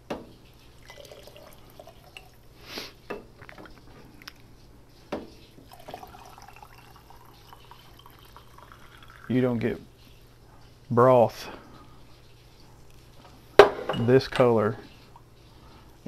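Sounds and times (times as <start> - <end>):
liquid trickling and dripping: 0.5 - 2.5, 5.4 - 9.8.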